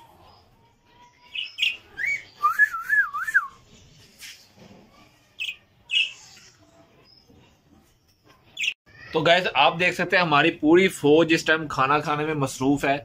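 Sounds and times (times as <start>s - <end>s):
budgerigars chirping: 1.3s - 1.8s
wavering bird whistle: 1.4s - 3.6s.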